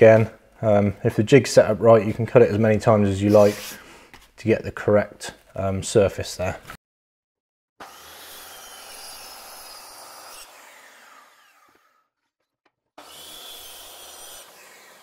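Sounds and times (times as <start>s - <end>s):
circular saw cutting plywood: 3.3s - 3.8s, 7.8s - 12.2s, 13.0s - 15.0s
saw motor winding down: 7.8s - 12.0s, 13.0s - 15.0s.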